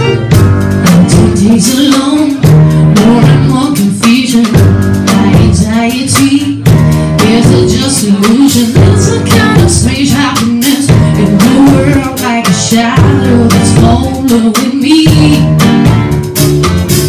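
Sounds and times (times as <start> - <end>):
woman singing: 0.0 - 15.6.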